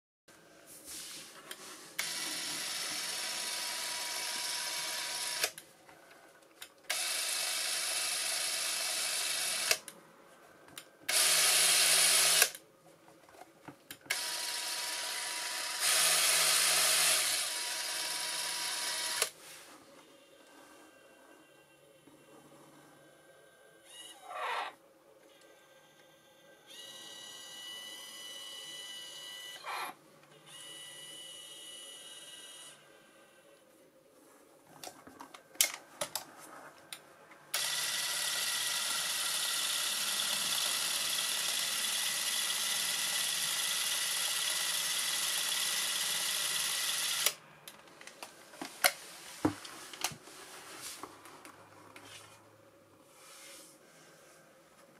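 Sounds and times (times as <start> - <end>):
film camera motor whirring: 2.0 - 5.6, 6.9 - 9.8, 11.1 - 12.6, 14.1 - 19.3, 37.5 - 47.4.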